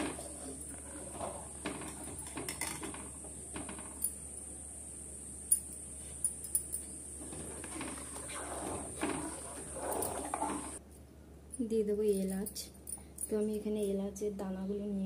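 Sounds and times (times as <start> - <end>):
spoon scraping a metal pot: 7.2 - 10.8.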